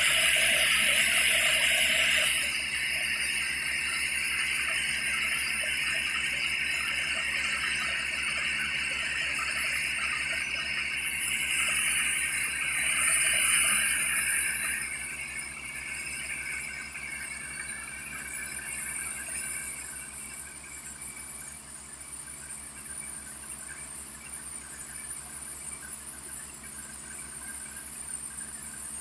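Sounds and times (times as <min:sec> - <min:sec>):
water and air gushing from borewell: 0:00.0 - 0:21.6.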